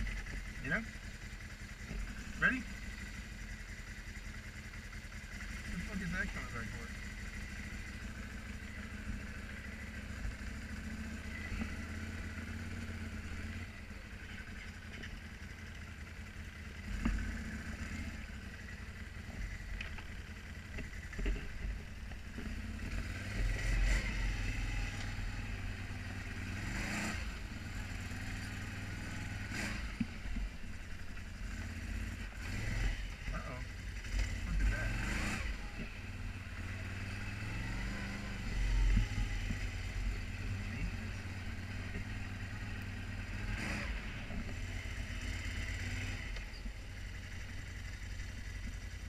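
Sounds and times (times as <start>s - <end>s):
sharp knocks from rough ground: 20.7s - 23.6s
quad engine revving: 22.3s - 30.6s, 31.2s - 46.6s.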